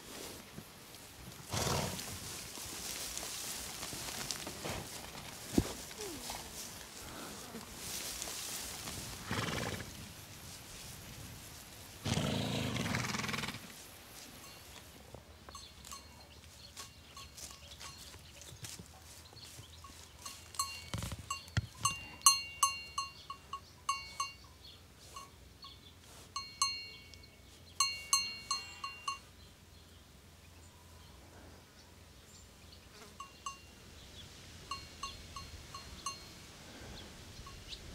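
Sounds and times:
livestock bells clanking: 15.5s - 18.3s, 19.8s - 29.4s, 33.2s - 33.8s, 34.7s - 36.4s.

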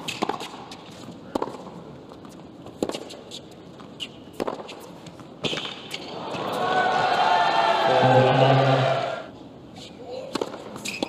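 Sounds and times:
tennis ball struck by rackets: 4.3s - 4.8s.

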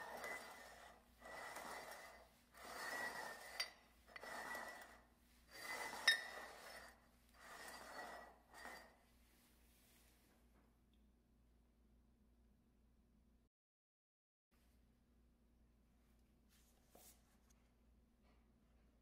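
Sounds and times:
mugs scraping across wooden floor: 0.0s - 9.1s
ceramic mugs clinking: 5.7s - 6.8s.

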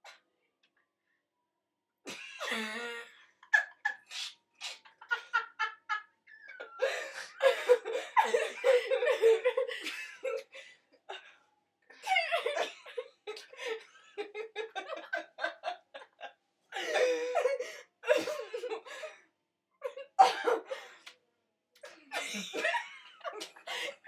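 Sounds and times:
women laughing: 2.1s - 10.6s, 12.0s - 19.1s, 19.8s - 20.8s, 21.9s - 24.0s.

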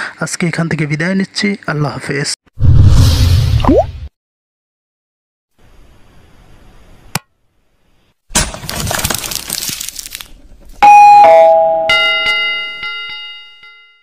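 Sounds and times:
crackling shattering burst: 8.3s - 10.3s
two-note ding-dong chime: 10.8s - 14.0s
ringing bell strike: 10.9s - 14.0s.

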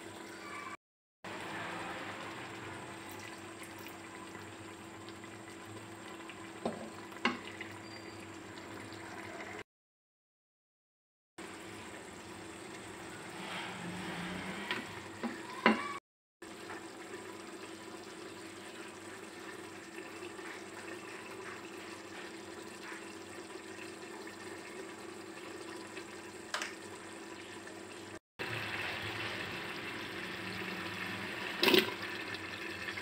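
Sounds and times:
water poured into pot: 2.0s - 4.6s, 28.4s - 33.0s.

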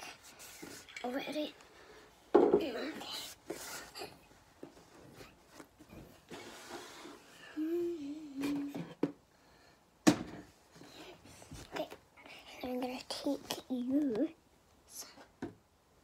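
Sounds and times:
rustling and handling noises: 0.0s - 7.4s, 10.4s - 12.1s, 12.8s - 15.4s
girl humming: 7.4s - 9.0s.

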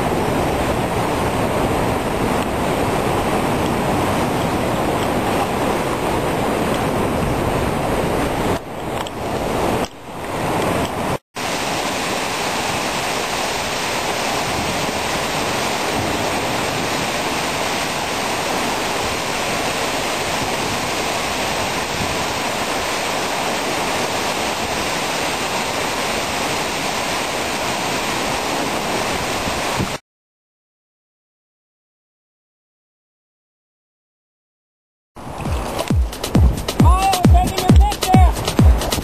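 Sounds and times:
waterfall splashing into ocean: 0.0s - 30.0s, 35.2s - 39.0s.

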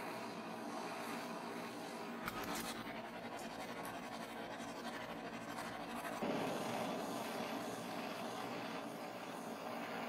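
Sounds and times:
blowtorch hissing: 0.0s - 10.0s.

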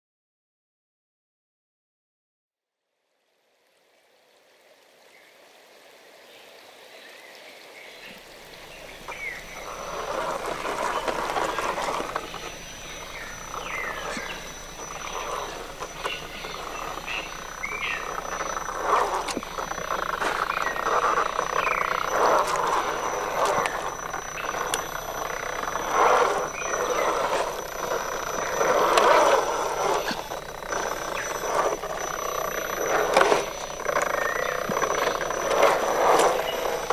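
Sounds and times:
toy truck electric motor: 8.6s - 36.9s.

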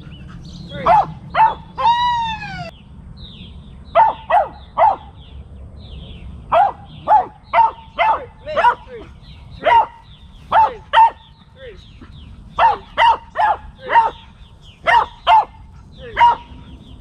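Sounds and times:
dog barking: 0.8s - 1.8s, 4.0s - 5.1s, 6.5s - 9.0s, 9.6s - 11.3s, 12.6s - 16.6s.

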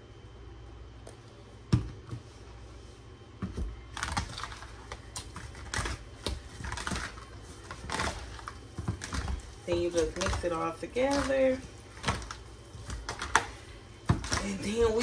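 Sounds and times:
hands mixing chicken in bowl: 4.0s - 15.0s.

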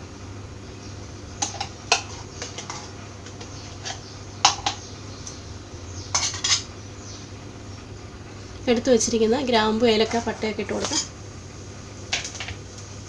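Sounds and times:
spoon scraping metal pot: 1.4s - 4.8s, 6.1s - 6.7s, 9.9s - 11.1s.

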